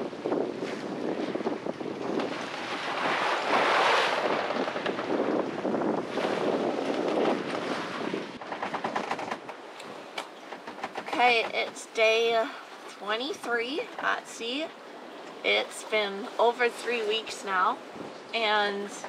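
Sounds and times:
sea waves rushing: 0:00.0 - 0:08.5, 0:09.5 - 0:19.0
wind buffeting microphone: 0:00.0 - 0:12.5.

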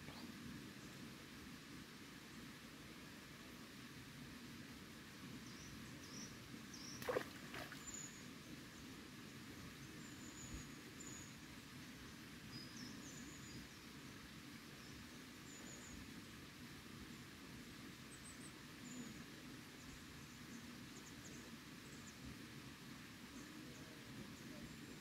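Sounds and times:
small birds chirping: 0:05.3 - 0:14.0, 0:14.8 - 0:16.2, 0:18.1 - 0:22.3.

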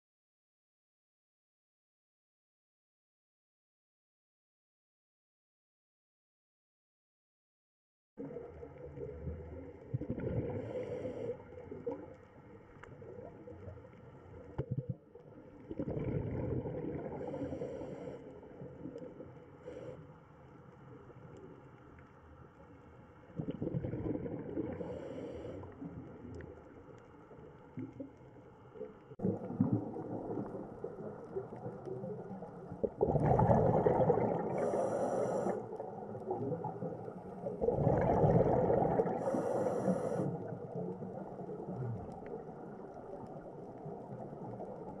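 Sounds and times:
bubbles rumbling and gurgling: 0:08.2 - 0:19.8, 0:23.2 - 0:45.0.

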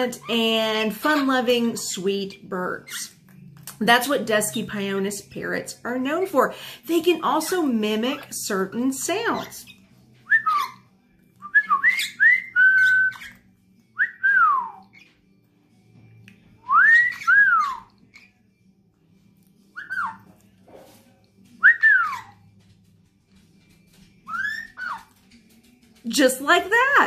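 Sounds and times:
parrot mimicking whistle: 0:10.3 - 0:10.8, 0:16.7 - 0:17.9, 0:19.8 - 0:20.2, 0:21.6 - 0:22.4.

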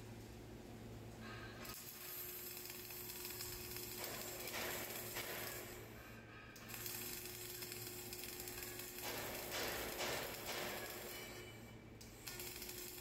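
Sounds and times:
welding arc crackling: 0:01.8 - 0:05.8, 0:06.6 - 0:11.4, 0:12.0 - 0:13.0.

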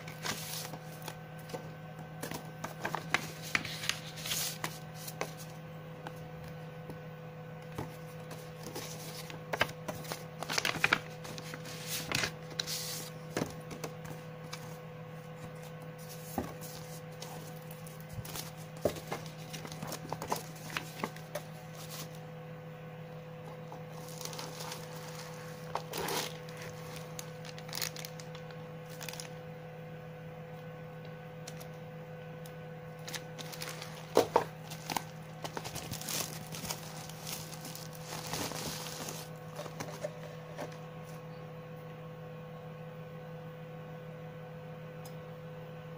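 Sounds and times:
paper and cardboard rustling: 0:00.0 - 0:05.6, 0:07.7 - 0:14.8, 0:15.4 - 0:22.2, 0:23.7 - 0:29.3, 0:33.0 - 0:40.8
steady low hum: 0:00.0 - 0:45.9.

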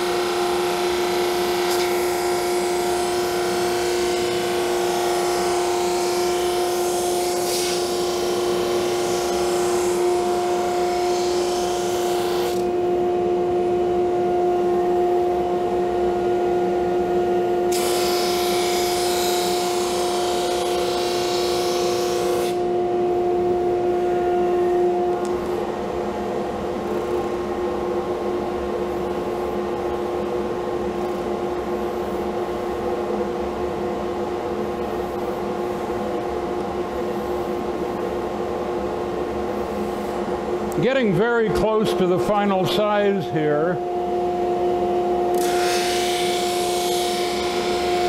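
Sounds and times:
drum sander humming: 0:00.0 - 0:48.0.

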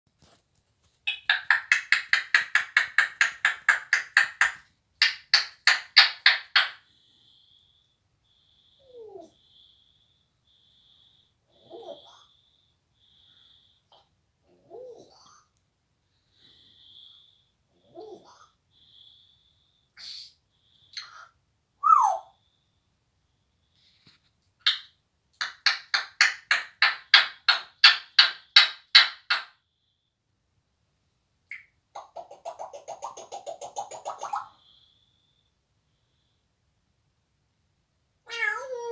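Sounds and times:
parrot clicking: 0:01.0 - 0:06.8, 0:24.6 - 0:29.6.

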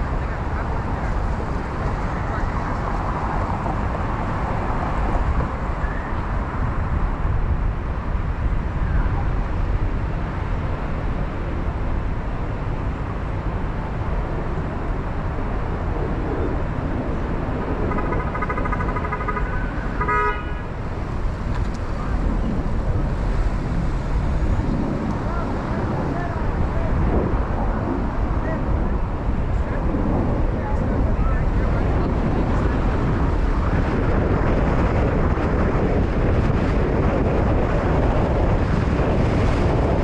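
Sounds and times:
street traffic rumble: 0:00.0 - 0:40.0
car horn: 0:18.3 - 0:20.7.

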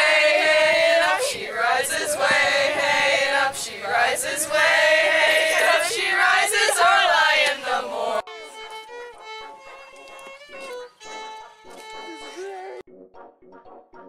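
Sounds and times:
young voices singing together: 0:00.0 - 0:08.2.

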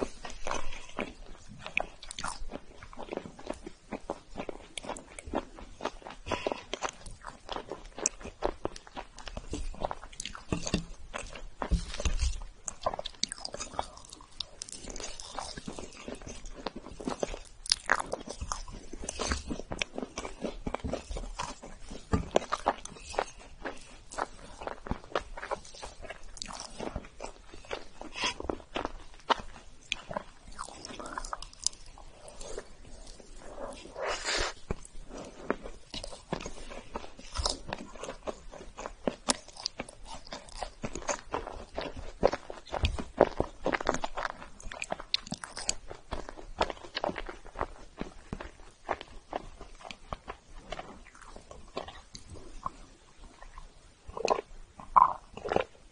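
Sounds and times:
chocolate shavings crunching: 0:00.0 - 0:52.8
wet mouth clicks: 0:54.2 - 0:55.2.

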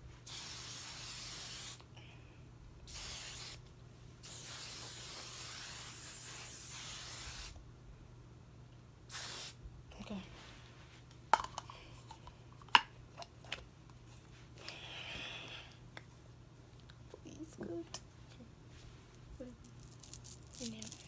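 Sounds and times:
aerosol spray hissing: 0:00.2 - 0:01.8, 0:02.9 - 0:03.6, 0:04.2 - 0:07.6, 0:09.1 - 0:09.6.

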